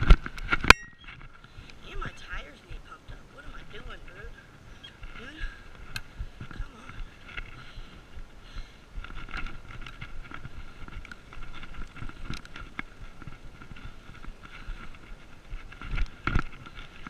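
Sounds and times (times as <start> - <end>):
low rumble of tyres on gravel: 0.0 - 17.0
bike parts rattling: 4.9 - 17.0.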